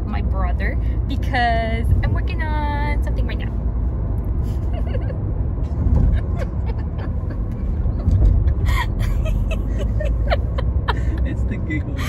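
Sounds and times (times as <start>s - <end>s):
car road and engine rumble: 0.0s - 12.0s
woman laughing: 4.5s - 5.2s, 5.9s - 12.0s.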